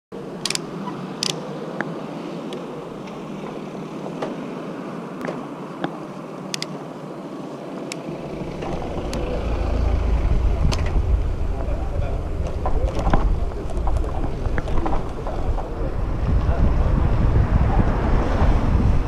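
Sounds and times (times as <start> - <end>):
street traffic noise: 0.1 - 19.0
bicycle clicks and rattles: 0.4 - 0.6, 1.2 - 1.4
low rumble: 8.1 - 19.0.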